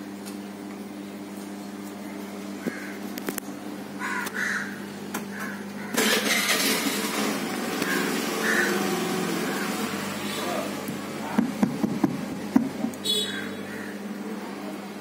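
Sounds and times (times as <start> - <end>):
steady electrical hum: 0.0 - 15.0
crows cawing: 2.6 - 3.1, 4.0 - 6.2, 7.8 - 9.9, 13.1 - 14.1.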